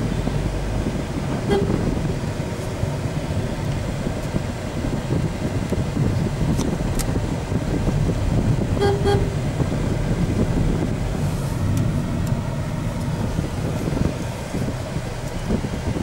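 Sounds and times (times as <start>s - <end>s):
road traffic rumble: 0.0s - 16.0s
vehicle horn beeps: 1.4s - 2.0s, 8.8s - 9.5s.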